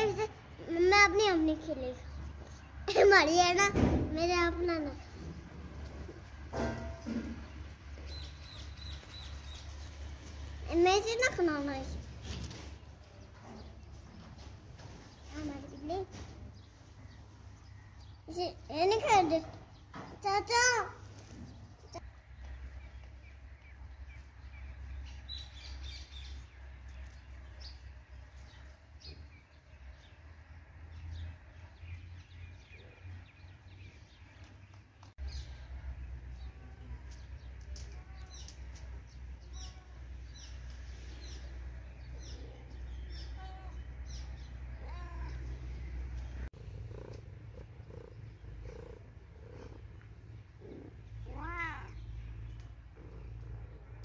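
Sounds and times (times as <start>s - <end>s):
cat meowing: 51.3s - 52.0s.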